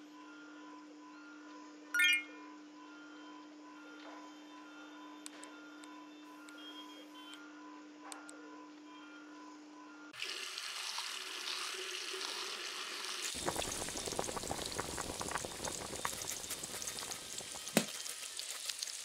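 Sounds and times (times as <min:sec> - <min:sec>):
food sizzling in a pan: 0:10.2 - 0:19.0.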